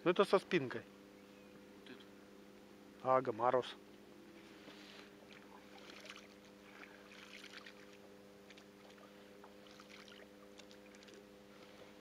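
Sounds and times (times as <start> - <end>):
steady low hum: 0.0 - 12.0
water lapping against boat: 4.6 - 11.3.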